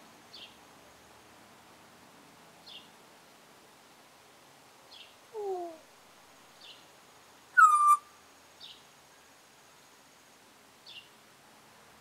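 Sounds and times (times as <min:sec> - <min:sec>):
parrot whistle: 0:07.6 - 0:08.0
faint high chirps: 0:07.6 - 0:08.1
parrot sharp call: 0:07.6 - 0:08.1.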